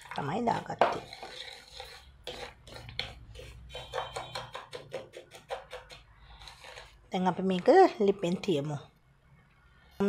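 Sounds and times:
wooden spoon scraping frying pan: 0.0s - 8.7s.

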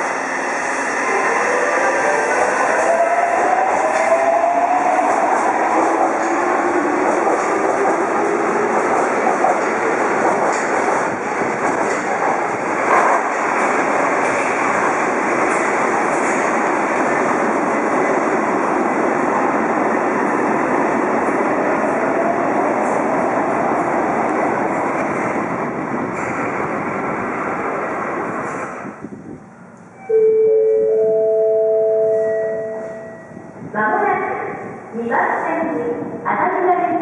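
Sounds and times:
train rumble: 0.0s - 30.0s
multi-tone chime: 30.1s - 33.3s.

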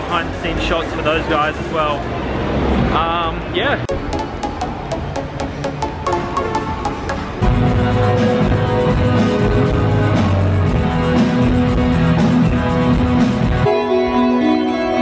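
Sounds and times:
held keyboard chords: 3.8s - 15.0s
live rock band playing: 6.0s - 15.0s.

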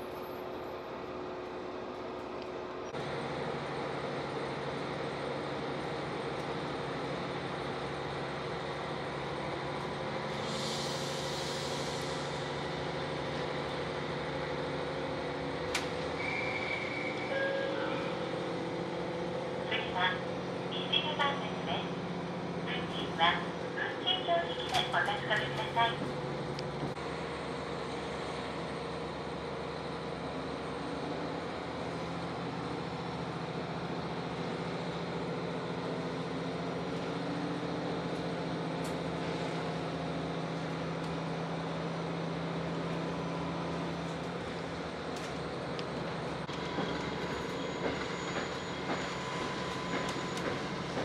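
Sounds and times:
diesel railcar engine running: 0.0s - 51.0s
hiss: 10.4s - 12.4s.

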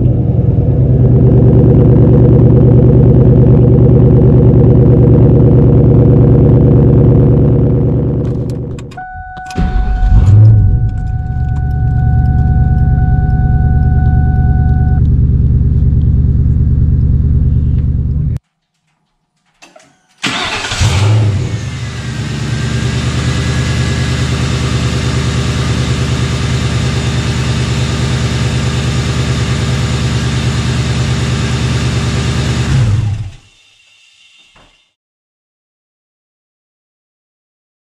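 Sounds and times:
car engine idling: 0.0s - 19.6s, 20.2s - 33.4s
engine starting with rev: 9.4s - 11.6s, 19.9s - 24.0s.

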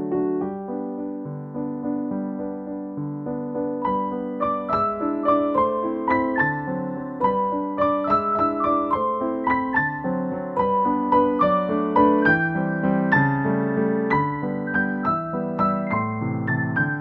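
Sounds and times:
solo piano music: 0.0s - 17.0s.

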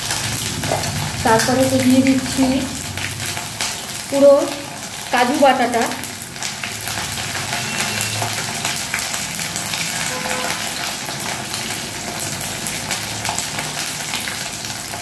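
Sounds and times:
oil sizzling and crackling: 0.0s - 15.0s.

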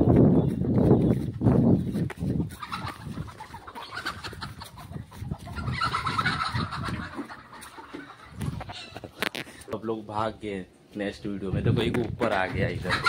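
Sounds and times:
person running through grass: 0.0s - 9.2s
chickens clucking and squawking: 0.0s - 9.7s, 12.2s - 13.0s.

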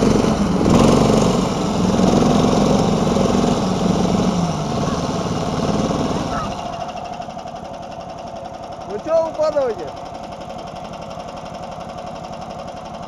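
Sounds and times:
snowmobile engine running: 0.0s - 12.2s.

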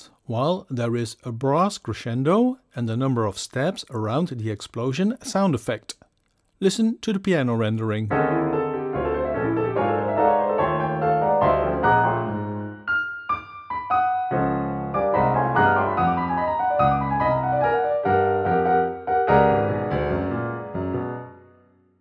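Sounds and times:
solo piano: 8.1s - 21.8s.

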